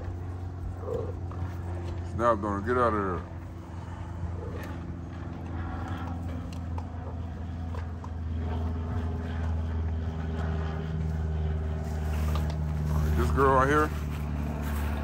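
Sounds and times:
low motor hum: 0.0 - 15.0
puppies eating clicks: 4.6 - 8.3.

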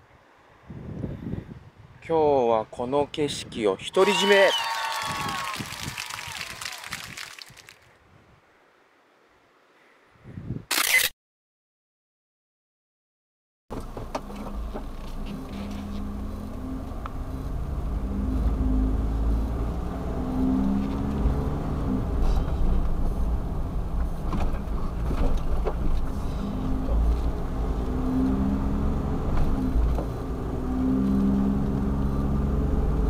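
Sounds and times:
van engine and road rumble: 13.7 - 33.0.

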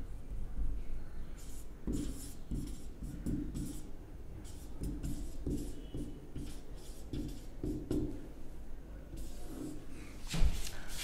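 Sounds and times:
marker squeaking on whiteboard: 1.4 - 8.1, 9.2 - 9.8.

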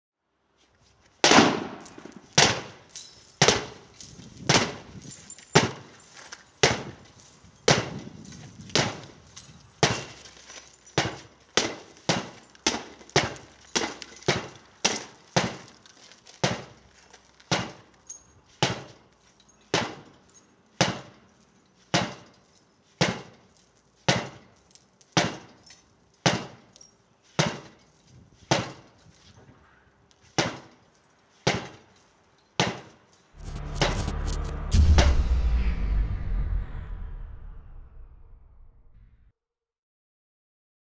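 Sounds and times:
sledgehammer striking glass: 1.6 - 15.8, 17.4 - 21.2, 21.9 - 22.4, 23.0 - 23.4, 24.0 - 27.8, 31.4 - 34.9.

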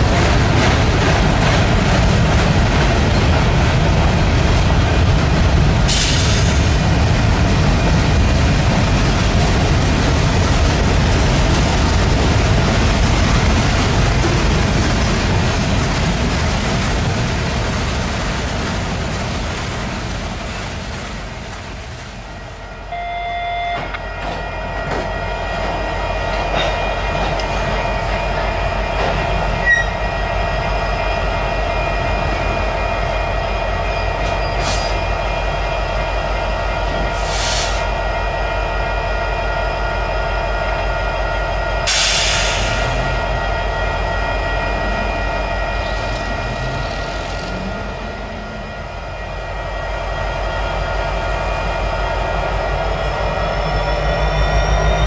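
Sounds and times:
clatter of train wheels: 0.0 - 22.3, 23.7 - 38.3
freight cars rumbling: 0.0 - 22.3
brief tone: 22.8 - 25.5, 29.6 - 30.0, 52.7 - 55.0
wheel squeal: 53.2 - 55.0.

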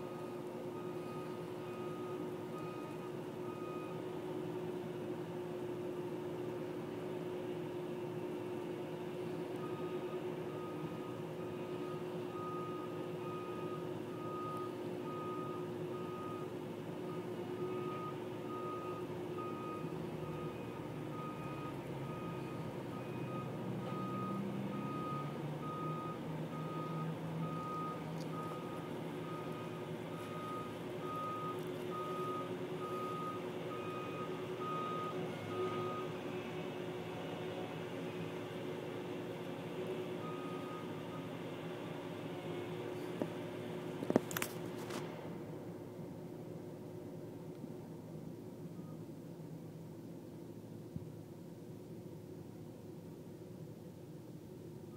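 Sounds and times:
backup alarm beeping: 17.1 - 36.1.

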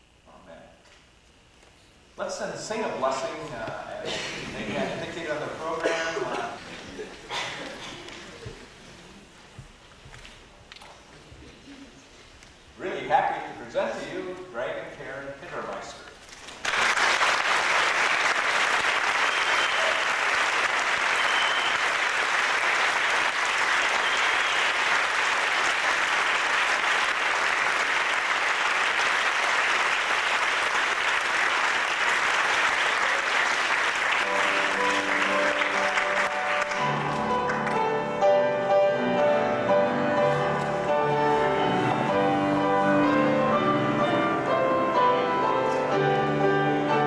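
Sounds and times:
congregation applauding: 16.3 - 38.5
recessional music sustained notes: 34.2 - 47.0.

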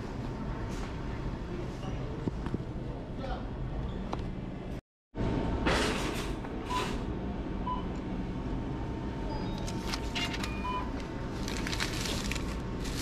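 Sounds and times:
store hum: 0.0 - 13.0.

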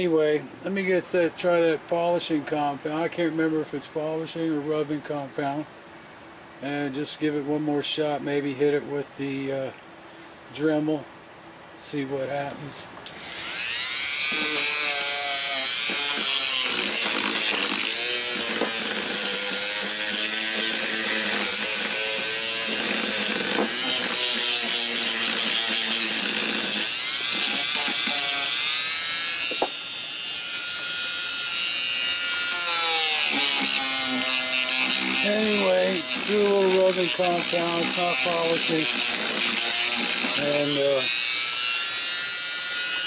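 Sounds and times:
rotary tool whining: 13.1 - 43.0.

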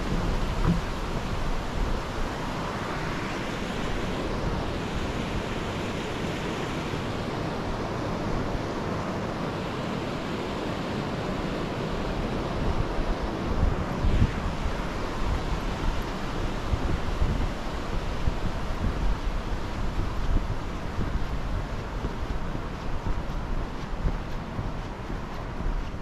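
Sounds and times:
wind buffeting microphone: 0.0 - 6.2, 11.4 - 26.0
river flowing over rocks: 0.0 - 8.1.

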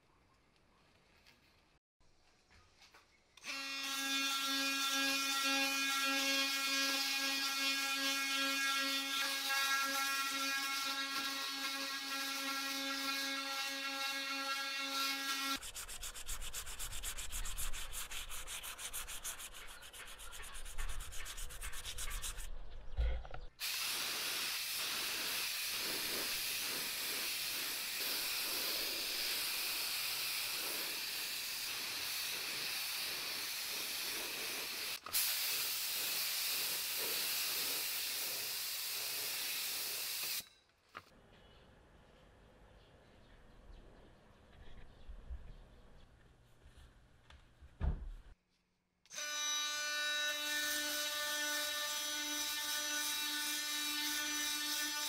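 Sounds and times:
sandpaper scrubbed by hand: 15.0 - 22.6, 23.6 - 40.2
spray gun hissing: 23.6 - 40.4.

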